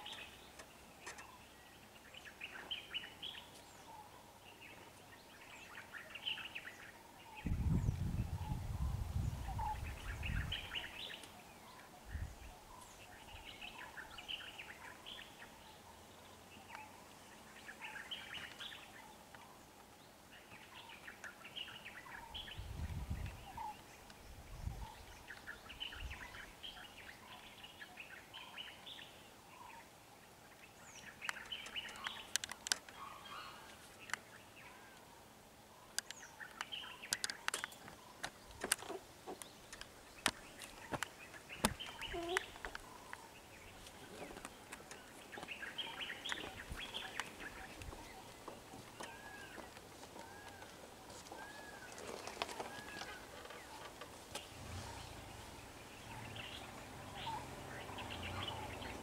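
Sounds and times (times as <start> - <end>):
birds chirping: 0.0 - 59.0
sharp clicks: 36.0 - 43.2.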